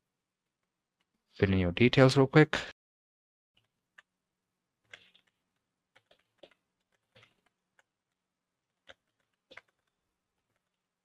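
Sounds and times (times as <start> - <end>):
typing on computer keyboard: 4.8 - 8.2, 8.8 - 10.8.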